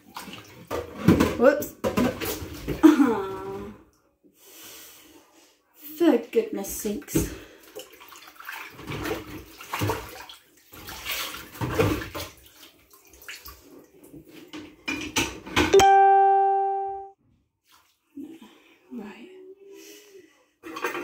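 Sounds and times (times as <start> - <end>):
water sloshing in sink: 0.0 - 2.8, 6.8 - 15.2.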